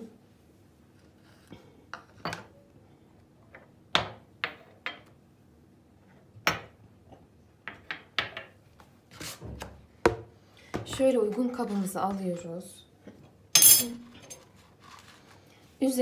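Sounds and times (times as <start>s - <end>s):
glasses and bowls clinking on stone: 13.6s - 14.4s.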